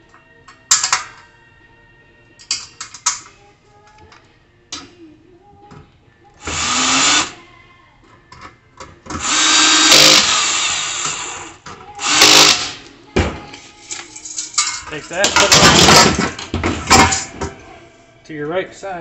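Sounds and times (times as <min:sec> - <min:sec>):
clicks and knocks of parts: 0:00.5 - 0:01.3, 0:02.4 - 0:04.9
power drill running: 0:06.4 - 0:07.4, 0:09.2 - 0:11.4, 0:12.0 - 0:12.8.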